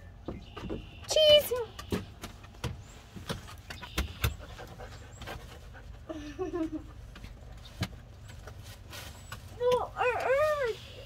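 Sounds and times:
sharp taps and knocks: 0:00.2 - 0:04.5
dog panting: 0:04.3 - 0:06.2.

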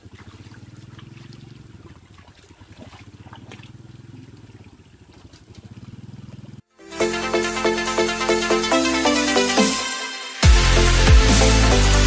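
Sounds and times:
muddy water splashing: 0:00.0 - 0:06.7.

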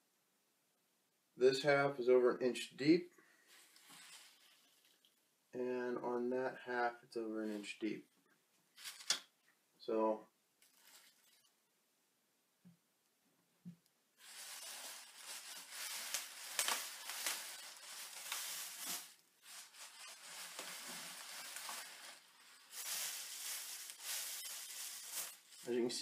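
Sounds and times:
plastic bags rustling and crinkling: 0:03.4 - 0:05.1, 0:08.7 - 0:09.2, 0:10.6 - 0:11.5, 0:14.2 - 0:26.0.

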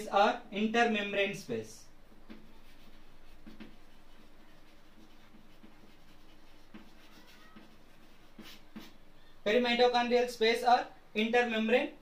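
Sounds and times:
chalk scratching on chalkboard: 0:02.2 - 0:09.0
chalk tapping: 0:02.2 - 0:09.0.

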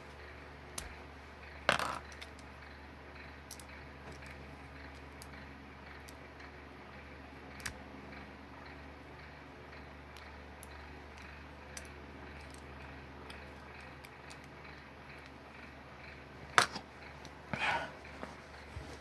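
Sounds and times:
low steady hum: 0:00.0 - 0:19.0
plastic pieces clicking: 0:01.6 - 0:02.5, 0:03.4 - 0:06.2, 0:07.5 - 0:07.8, 0:10.1 - 0:15.4
plastic piece snapping: 0:16.5 - 0:16.8.

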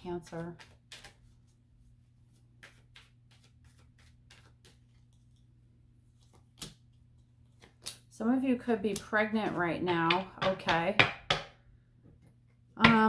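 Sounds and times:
cards being shuffled: 0:00.2 - 0:08.1.

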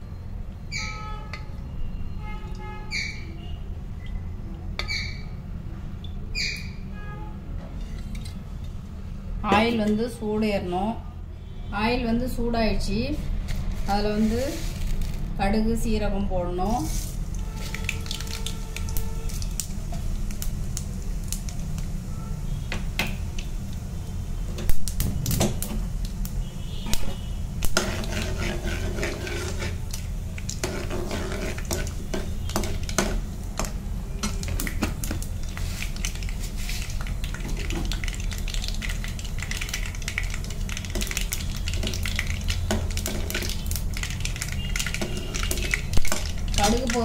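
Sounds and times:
seeds popping in hot oil: 0:16.8 - 0:47.0
ladle scraping and clinking pan: 0:27.8 - 0:29.8, 0:30.6 - 0:33.2.

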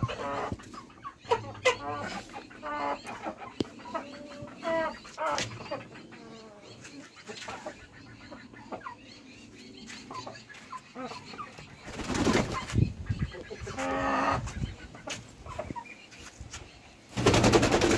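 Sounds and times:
roosters clucking: 0:00.0 - 0:17.9
wing flapping and scuffling: 0:11.8 - 0:13.1, 0:16.1 - 0:17.9.

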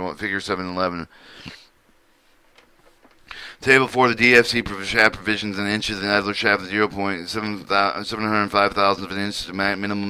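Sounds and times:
man reading aloud: 0:00.0 - 0:01.1, 0:03.6 - 0:10.0
man breathing softly: 0:01.1 - 0:02.4, 0:03.2 - 0:03.6.

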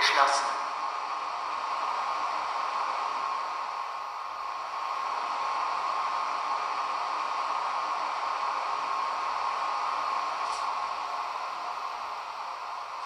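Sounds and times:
fan-like hiss with thin whine: 0:00.0 - 0:13.0.

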